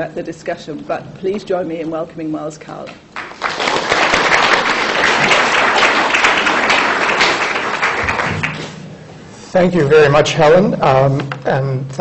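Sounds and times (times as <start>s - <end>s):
audience applauding: 3.2s - 8.8s.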